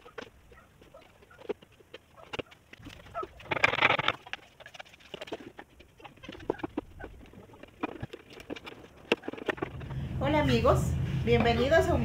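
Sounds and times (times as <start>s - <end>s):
plastic bottle crinkling: 0.0s - 9.9s.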